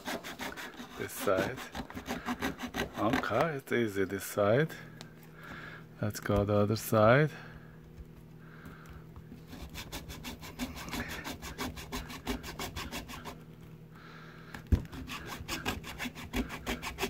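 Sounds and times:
hand saw rasping through plastic: 0.0s - 3.6s, 9.4s - 13.4s, 14.8s - 17.0s.

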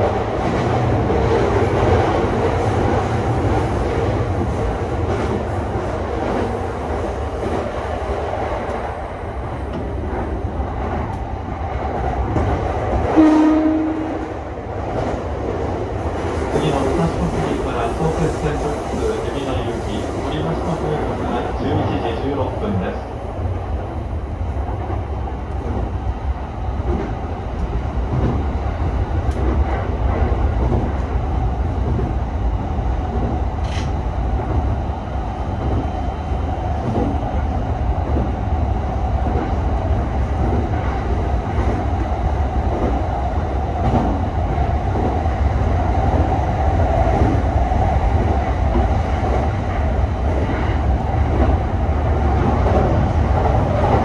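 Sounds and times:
train hum: 0.0s - 54.0s
wheels rumbling on rail: 0.0s - 54.0s
faint rail clicks: 29.2s - 29.8s, 33.1s - 34.0s.

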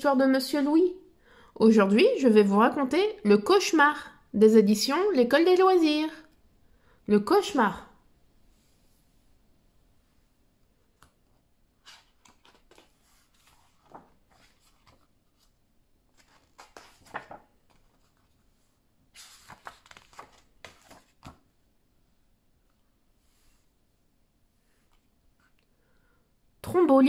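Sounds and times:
book pages turning: 11.0s - 21.6s.

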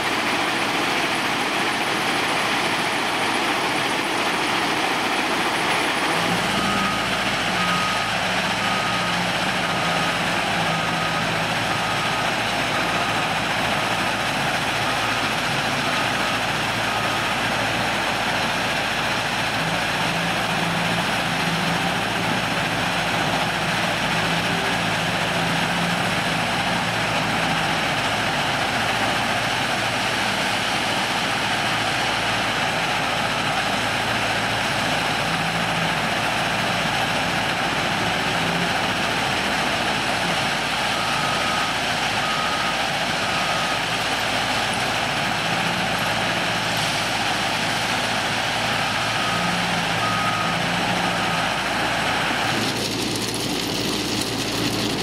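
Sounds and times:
gravel screening plant running: 0.0s - 55.0s
wheel loader diesel engine: 0.0s - 55.0s
reversing alarm beeping: 0.8s - 18.8s, 37.4s - 46.6s, 48.2s - 52.6s.

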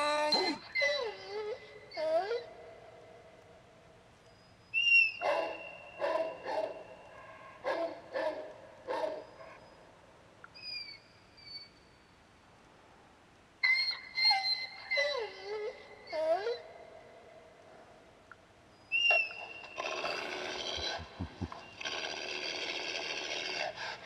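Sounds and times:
wavering howl-like calls: 0.0s - 3.4s, 13.6s - 17.5s
dog barking: 5.2s - 9.6s.

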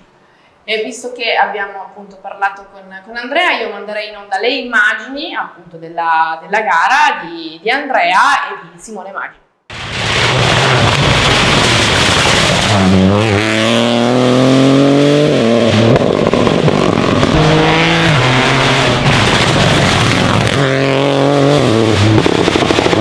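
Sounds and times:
car engine revving high: 9.8s - 23.0s.

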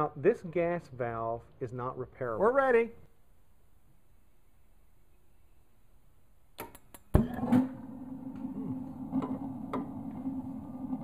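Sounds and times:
gas burner roaring: 7.4s - 11.0s
flame igniting whoomp: 7.8s - 11.0s.

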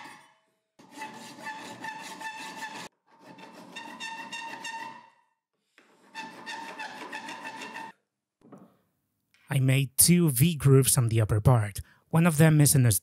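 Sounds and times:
file scraping metal rod: 0.0s - 8.0s.

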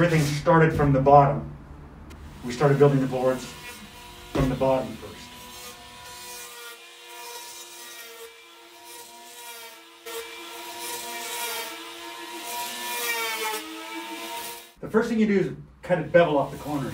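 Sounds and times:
electric planer whine: 2.8s - 14.7s
planer cutting hiss: 16.0s - 16.9s.

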